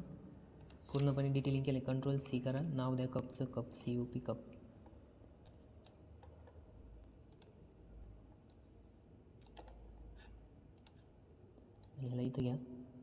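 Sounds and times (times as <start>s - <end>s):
faint computer mouse clicks: 7.3s - 7.6s, 9.4s - 11.0s.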